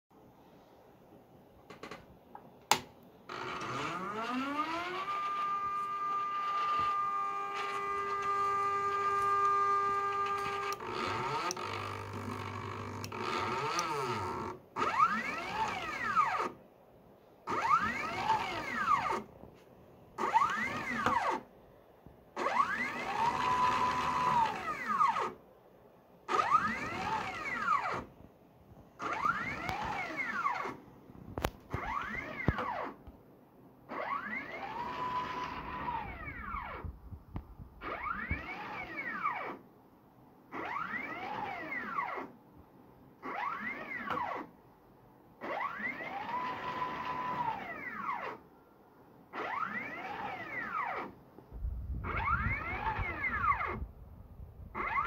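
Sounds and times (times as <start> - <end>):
stepper motor whining: 3.5 - 16.5.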